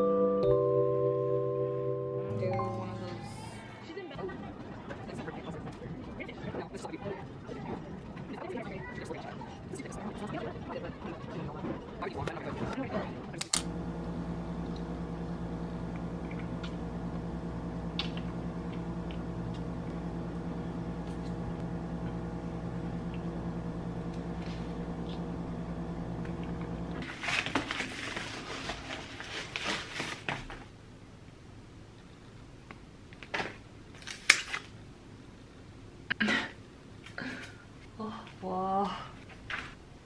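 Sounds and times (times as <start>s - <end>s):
machine hum: 13.4s - 28.5s
padded envelope crinkling: 27.0s - 30.6s.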